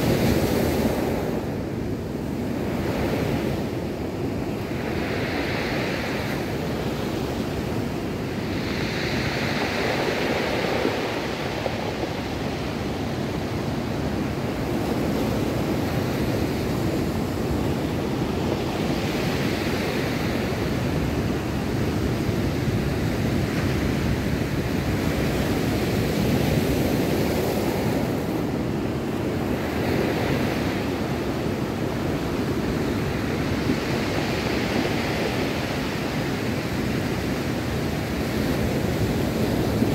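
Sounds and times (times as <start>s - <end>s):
wind buffeting microphone: 0.0s - 39.9s
surf breaking on cobble beach: 4.6s - 28.7s.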